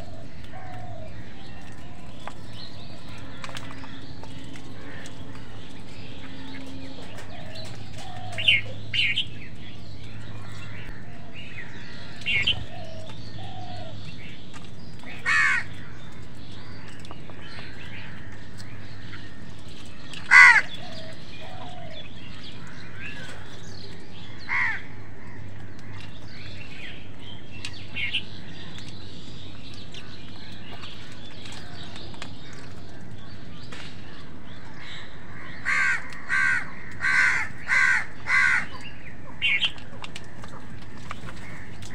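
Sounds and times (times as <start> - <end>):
crows cawing: 2.9 - 9.2, 10.0 - 14.0, 15.1 - 26.1, 34.7 - 40.7.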